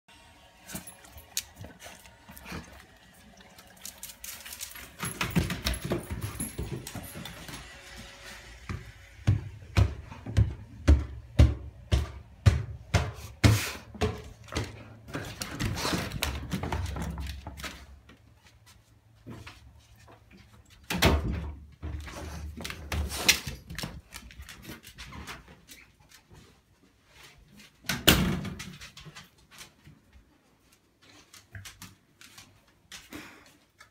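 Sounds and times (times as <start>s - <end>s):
dog moving on tiled floor: 3.7s - 8.8s, 13.0s - 21.0s, 21.8s - 33.9s.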